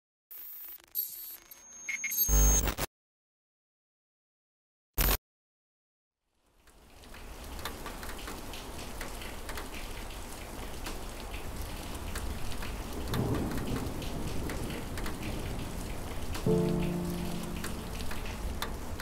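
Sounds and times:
rain falling steadily: 6.3 - 19.0
low rumble of thunder: 11.9 - 19.0.

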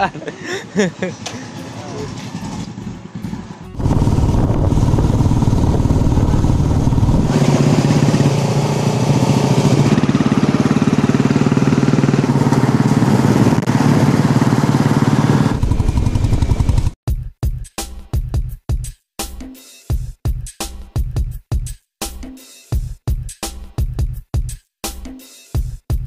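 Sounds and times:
motorcycle engine cruising: 0.7 - 17.0
wind rush on microphone: 3.8 - 7.4.

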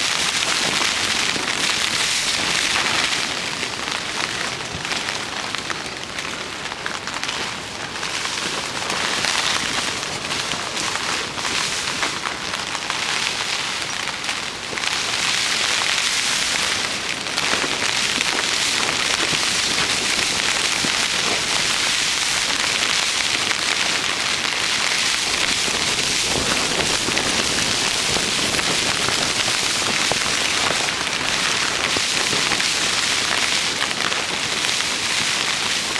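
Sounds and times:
heavy rain on tent fabric: 0.0 - 35.9.

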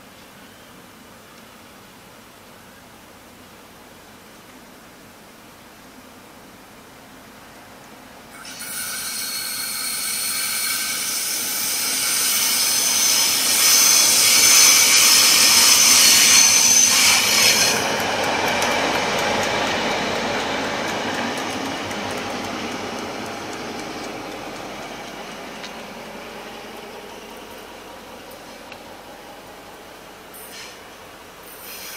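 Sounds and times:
diesel locomotive passing: 7.6 - 31.9
wheels squealing on curve: 8.5 - 18.0.

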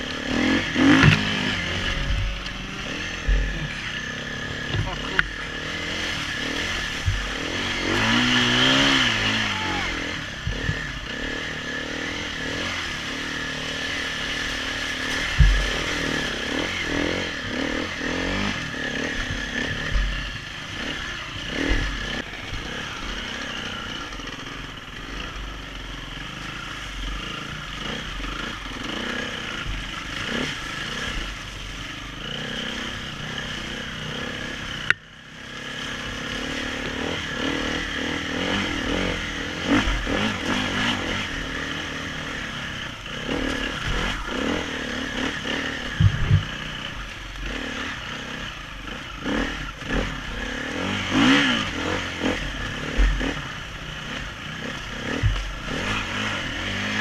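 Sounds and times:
motorcycle engine revving: 0.0 - 57.0
motorcycle knocks and clatter: 0.4 - 3.9, 4.6 - 5.4, 6.0 - 8.2, 10.4 - 11.3, 15.1 - 17.7, 19.0 - 20.4, 21.5 - 22.8, 45.4 - 47.8, 54.6 - 56.0.

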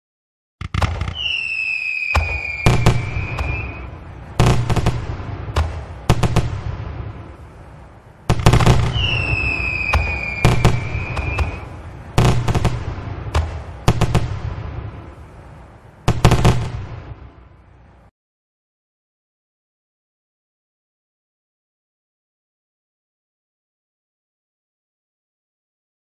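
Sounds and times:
fireworks bangs: 0.6 - 17.4
falling firework whistle: 0.7 - 4.0, 8.3 - 12.7.

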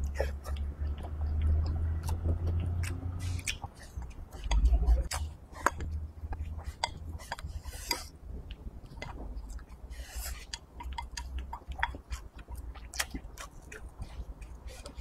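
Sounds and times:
person chewing: 0.0 - 15.0
chopsticks clicking on ceramic bowl: 4.4 - 8.1.

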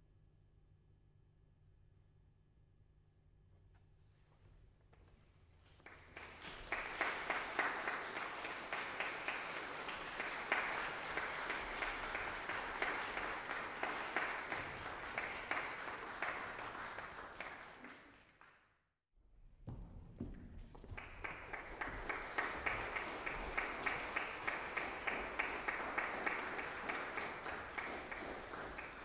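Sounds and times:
audience applauding: 5.7 - 18.6, 20.8 - 29.0.

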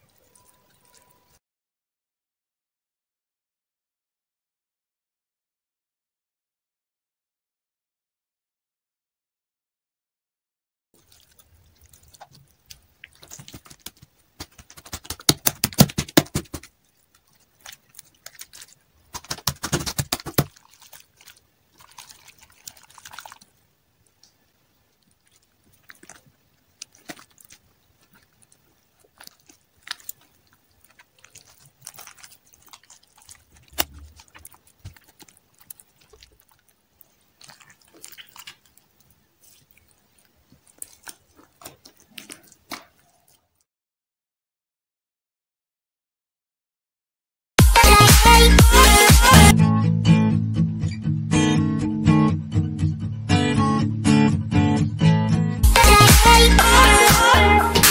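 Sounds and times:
slime crackling and popping: 11.0 - 23.6, 25.2 - 43.0
sticky clicks and squelches: 11.0 - 43.4.

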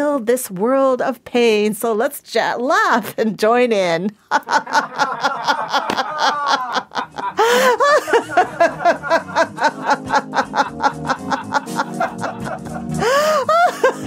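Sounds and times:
high whooping laugh: 4.3 - 14.0
woman laughing heartily: 4.3 - 14.0.

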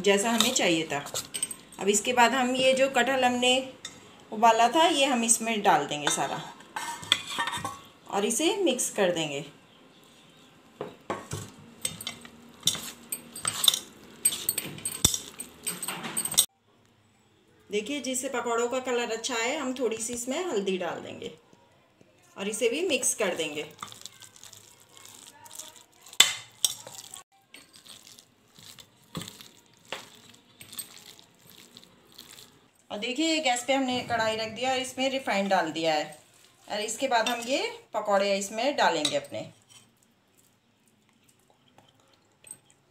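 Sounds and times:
spoon clinking and scraping steel bowl: 0.3 - 1.8, 6.0 - 7.9, 11.8 - 16.5, 23.3 - 32.5.

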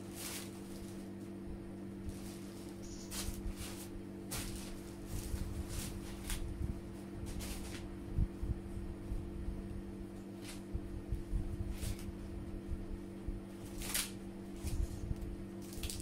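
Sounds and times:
steady low hum: 0.0 - 16.0
corn husks tearing: 2.1 - 6.5, 13.6 - 15.0, 15.6 - 16.0.

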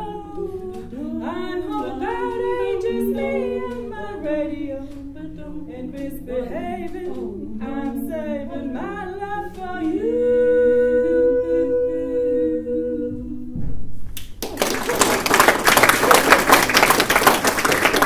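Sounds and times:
female vocal trio singing: 0.0 - 13.7
audience applause: 14.4 - 18.0.

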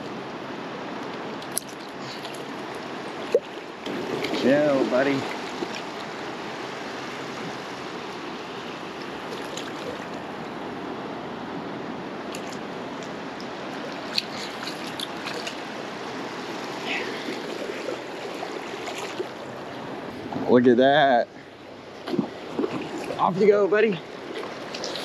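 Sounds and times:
ocean surf washing up beach: 0.0 - 25.0
light ticks and small splashes: 1.0 - 6.2, 12.3 - 15.7, 17.0 - 19.4, 24.2 - 25.0.

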